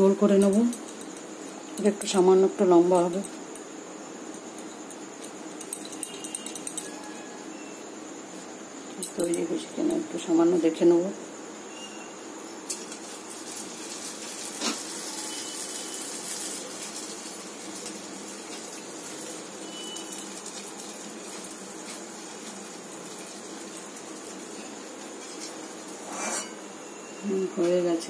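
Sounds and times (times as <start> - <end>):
oil sizzling in a pan: 11.8 - 27.8.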